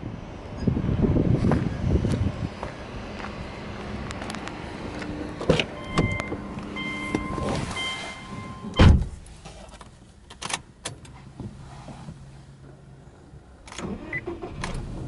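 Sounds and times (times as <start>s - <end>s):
car door shutting thud: 8.6s - 9.2s.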